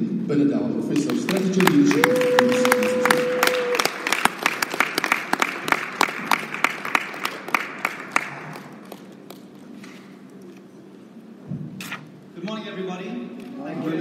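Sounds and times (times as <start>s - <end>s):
audience applauding: 1.0s - 9.6s.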